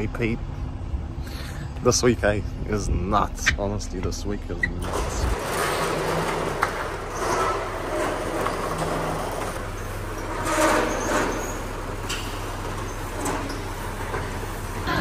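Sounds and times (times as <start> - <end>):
roller shutter door motor running: 3.4 - 15.0.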